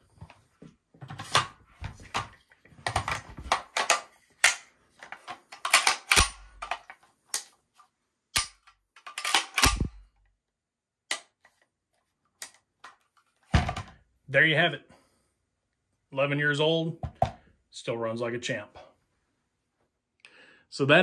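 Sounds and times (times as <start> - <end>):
rifle parts clicking together: 2.9 - 7.6, 8.3 - 10.0, 12.4 - 13.0.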